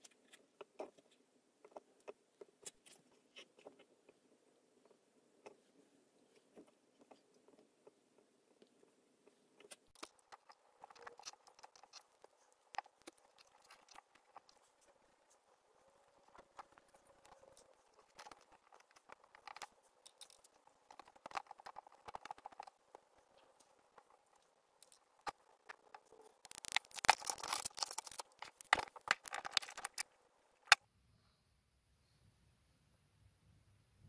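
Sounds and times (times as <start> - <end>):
scratchy rubbing and scraping: 5.4 - 30.8.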